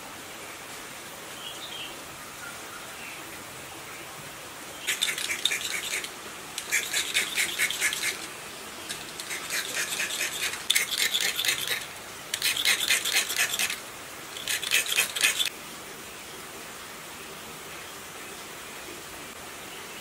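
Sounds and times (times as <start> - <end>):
blade scraping copper wires: 4.8 - 13.8, 14.4 - 15.5.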